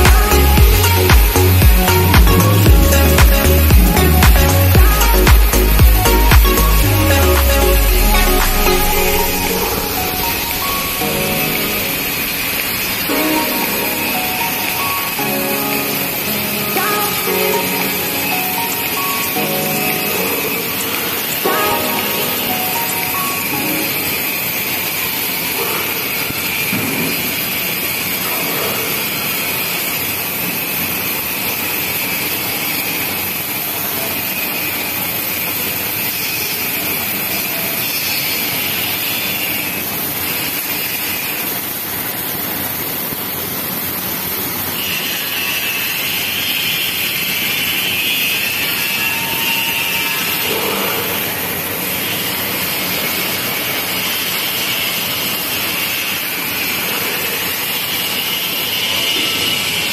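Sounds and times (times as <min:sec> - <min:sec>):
welding arc hissing: 0:00.0 - 0:59.9.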